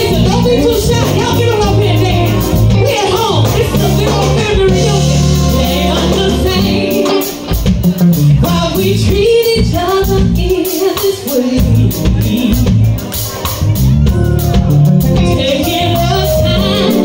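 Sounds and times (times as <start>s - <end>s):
woman singing into microphone: 0.0s - 7.6s, 8.4s - 12.9s, 15.2s - 17.0s
drum kit: 0.0s - 17.0s
keyboard: 0.0s - 17.0s.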